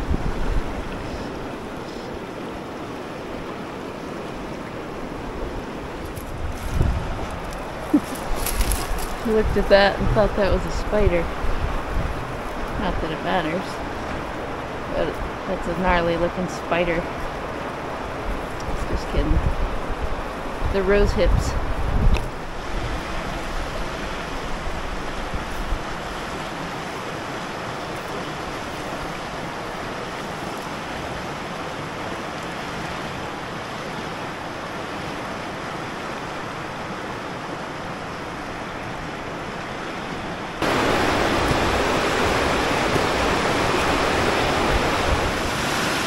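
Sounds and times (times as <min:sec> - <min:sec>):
river water rushing over rocks: 0:00.0 - 0:46.0.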